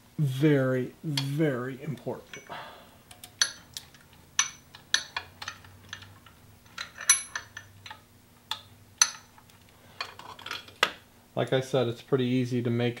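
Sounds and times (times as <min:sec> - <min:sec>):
faint steady hum: 0:00.0 - 0:13.0
tools clinking on metal: 0:02.2 - 0:09.3.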